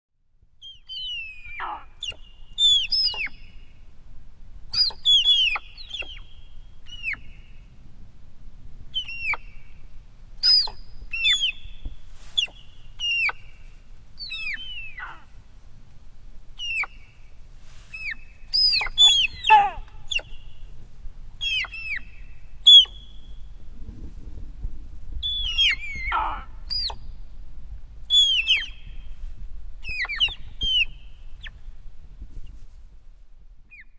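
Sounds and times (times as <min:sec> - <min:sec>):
low steady rumble: 0:00.2 - 0:33.9
deer squeaky calls: 0:00.7 - 0:03.4, 0:04.7 - 0:06.3, 0:10.4 - 0:11.6, 0:12.3 - 0:13.5, 0:14.2 - 0:15.3, 0:16.6 - 0:17.0, 0:17.9 - 0:20.5, 0:21.4 - 0:23.1, 0:25.2 - 0:27.0, 0:28.1 - 0:28.8, 0:29.8 - 0:31.6.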